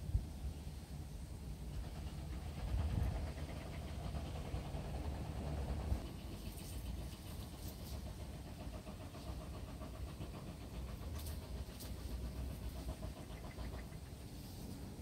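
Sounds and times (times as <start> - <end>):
low steady rumble: 0.0 - 15.0
rustling through tall grass: 5.9 - 8.6, 11.0 - 15.0.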